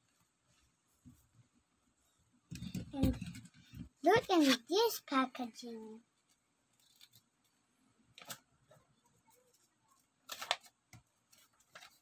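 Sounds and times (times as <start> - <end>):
cardboard packaging rustling: 10.2 - 12.0
packaging crinkling: 10.2 - 12.0.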